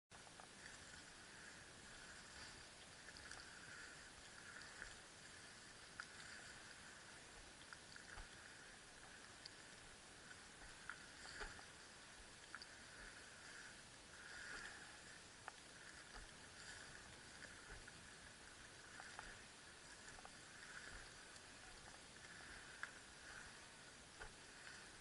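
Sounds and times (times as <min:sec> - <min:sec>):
light ticks: 0:02.2 - 0:05.0, 0:05.7 - 0:06.7, 0:07.4 - 0:11.8, 0:12.4 - 0:12.8, 0:24.1 - 0:24.9.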